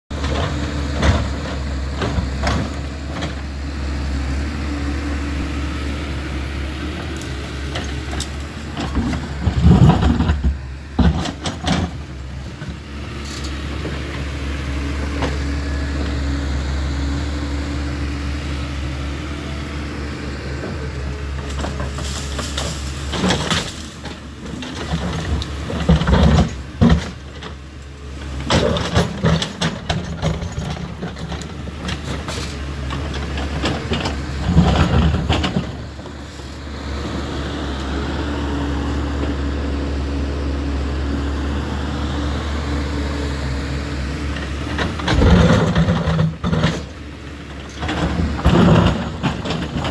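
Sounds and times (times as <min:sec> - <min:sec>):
excavator diesel engine droning: 0:00.1 - 0:49.9
branches cracking and knocking: 0:21.4 - 0:24.2.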